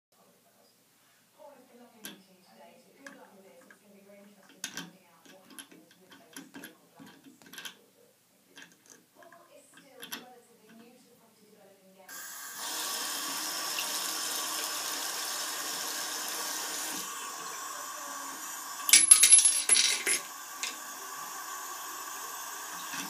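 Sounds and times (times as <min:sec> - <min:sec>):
tap handle clicking and rattling: 0:04.4 - 0:07.8, 0:08.6 - 0:10.9
water running into sink: 0:12.1 - 0:23.0.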